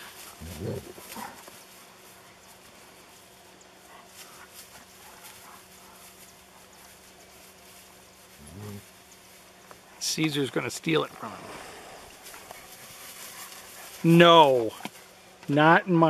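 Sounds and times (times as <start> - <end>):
rustling in tall grass: 0.0 - 16.0.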